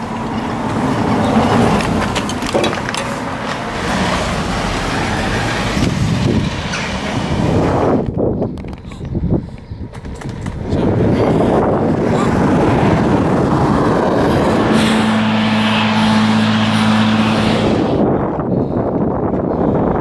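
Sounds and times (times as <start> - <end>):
passing car engine hum: 0.0 - 8.1, 10.6 - 18.4
wind rushing over microphone: 0.0 - 20.0.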